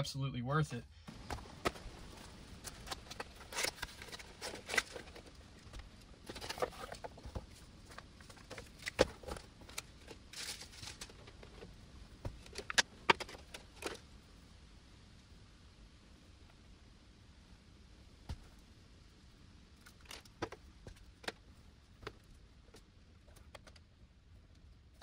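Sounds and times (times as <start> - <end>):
cardboard and paper rustling: 1.1 - 14.1.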